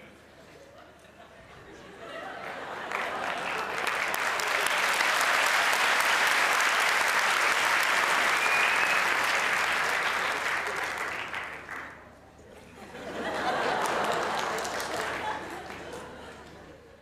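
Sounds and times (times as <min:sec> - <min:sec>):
audience applauding: 0:02.2 - 0:12.1, 0:13.2 - 0:16.6.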